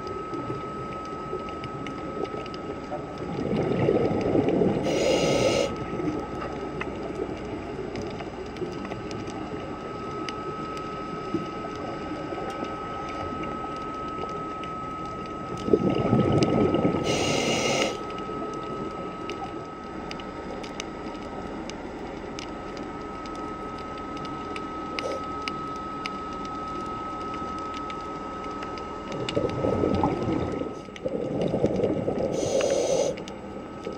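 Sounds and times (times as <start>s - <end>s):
small clicks crackling: 0.0s - 4.9s, 5.8s - 16.7s, 18.0s - 33.9s
diver breathing through regulator: 4.8s - 5.8s, 17.0s - 18.0s, 32.3s - 33.3s.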